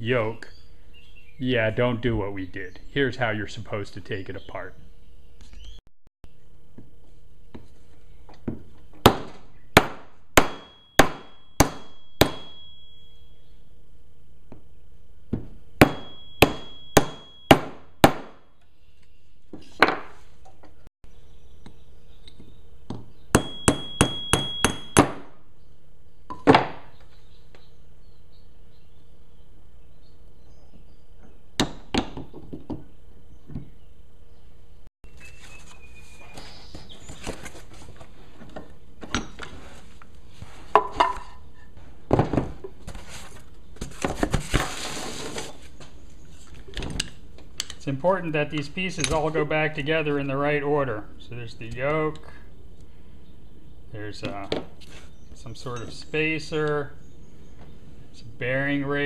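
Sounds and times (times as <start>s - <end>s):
hammer striking metal punch: 9.1s - 13.0s, 15.8s - 18.4s, 23.3s - 25.3s
short metallic ring: 10.6s - 13.4s, 16.0s - 17.6s.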